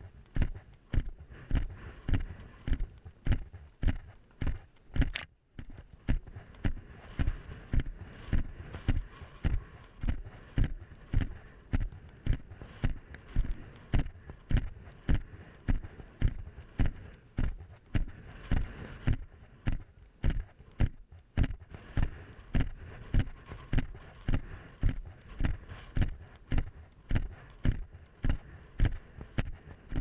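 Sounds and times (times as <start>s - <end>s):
horse hoofbeats cantering: 0.0s - 30.0s.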